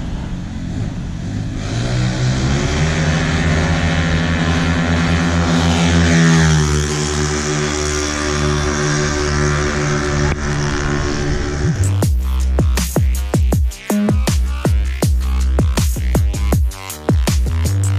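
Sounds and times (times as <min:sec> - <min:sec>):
scooter engines at full throttle: 0:00.0 - 0:17.9
electronic music with bass beat: 0:09.4 - 0:17.9.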